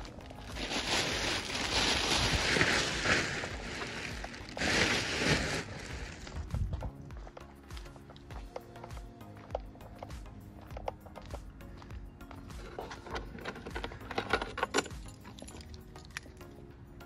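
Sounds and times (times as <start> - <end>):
plastic sheet rustling and crinkling: 0.0 - 6.7.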